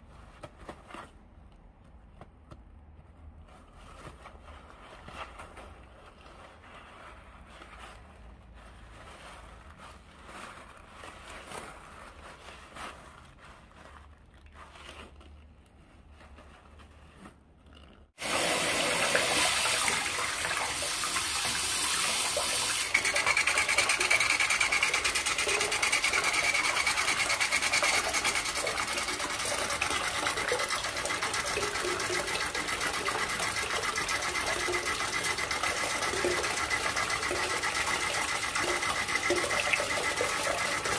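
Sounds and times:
shower water splashing into bowl: 18.2 - 40.9.

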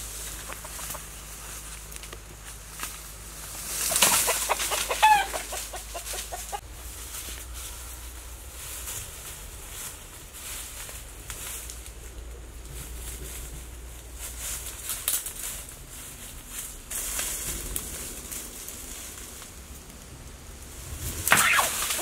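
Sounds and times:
rooster clucking: 0.0 - 1.6, 3.6 - 6.9, 21.3 - 22.0
rooster squawk: 3.9 - 6.6, 21.3 - 22.0.

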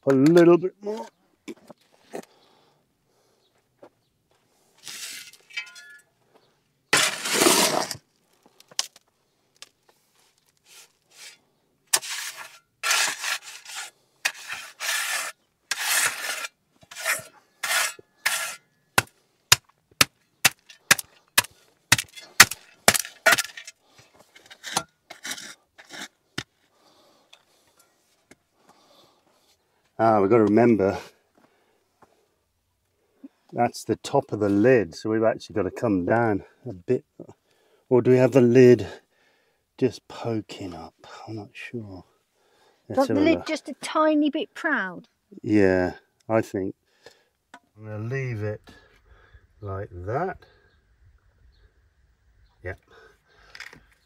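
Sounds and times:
shovel scraping soil and rubble: 4.8 - 6.0, 6.9 - 8.9, 10.0 - 18.7, 20.4 - 26.7, 43.0 - 43.6.

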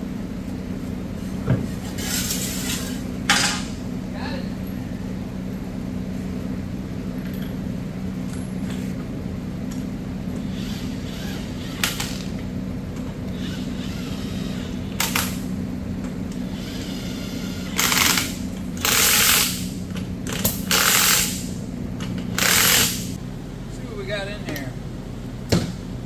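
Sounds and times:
steady low hum: 0.0 - 26.0
impact wrench hammering: 22.2 - 23.2.

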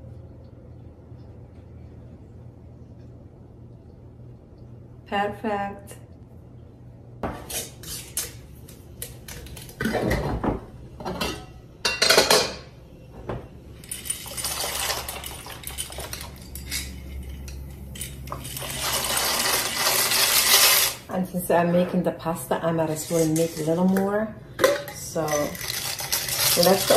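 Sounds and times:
cookware knocking and clinking: 9.8 - 12.7
dry pasta rattling into pot: 13.8 - 21.0, 25.3 - 26.9.

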